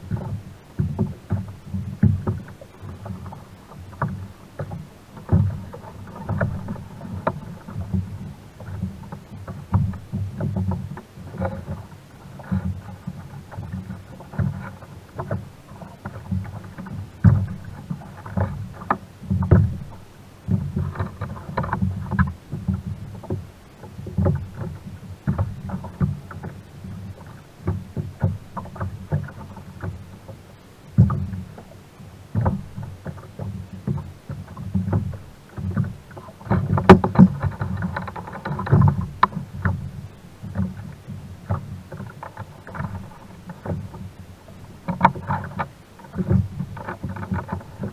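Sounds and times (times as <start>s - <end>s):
gear knocking on hull: 0.0s - 31.7s, 32.3s - 47.9s
water lapping against kayak hull: 0.0s - 47.9s.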